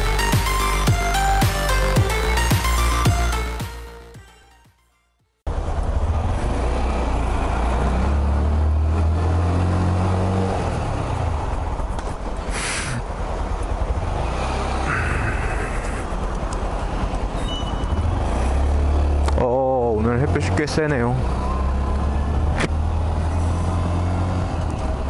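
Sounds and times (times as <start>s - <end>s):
motorcycle engine running: 11.2s - 18.2s.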